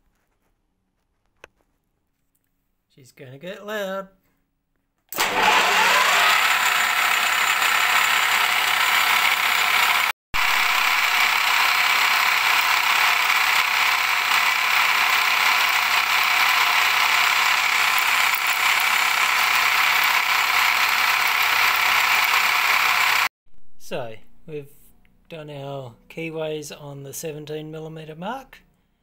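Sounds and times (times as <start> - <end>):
milling machine cutting metal: 5.2 - 23.3.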